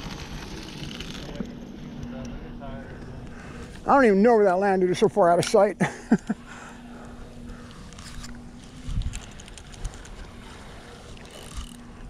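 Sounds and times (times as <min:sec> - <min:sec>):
fishing reel whirring: 0:00.0 - 0:01.5, 0:06.2 - 0:12.0
wind on microphone: 0:08.0 - 0:10.5.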